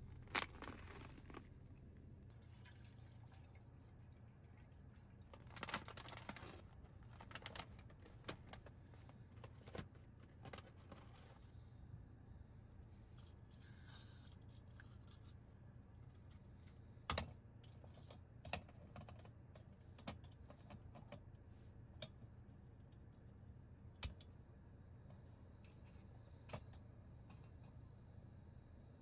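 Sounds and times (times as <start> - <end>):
faint low hum: 0.0 - 29.0
foil pouch crinkling: 0.1 - 1.6, 5.4 - 8.5.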